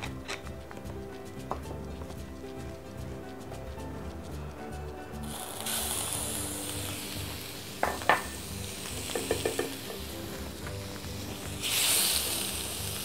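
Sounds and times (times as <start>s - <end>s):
shrimp sizzling in oil: 5.2s - 13.0s
spoon stirring in pan: 9.1s - 10.8s.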